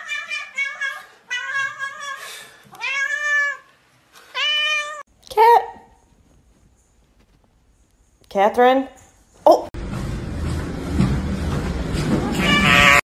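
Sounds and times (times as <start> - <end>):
cat meowing: 0.0 - 3.7, 4.3 - 5.0, 12.3 - 13.0.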